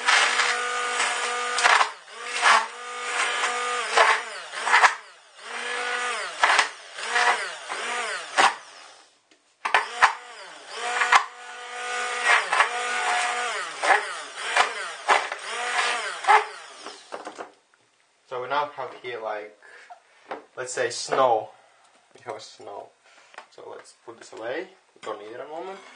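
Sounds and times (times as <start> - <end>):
stick blender motor whine: 0.0 - 9.1, 9.7 - 17.4.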